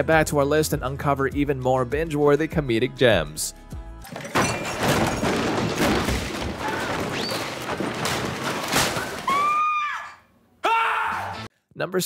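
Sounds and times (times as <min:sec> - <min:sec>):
crashes thuds and clatter: 0:04.0 - 0:09.6.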